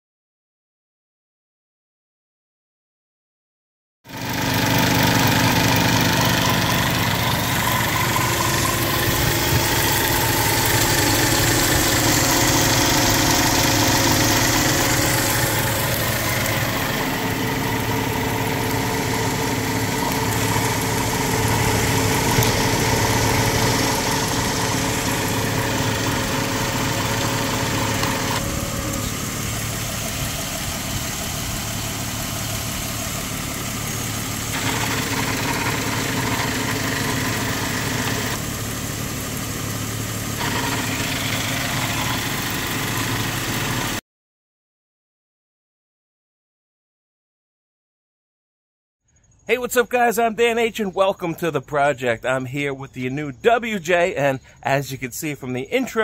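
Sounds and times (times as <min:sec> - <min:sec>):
car engine running: 0:04.1 - 0:44.0.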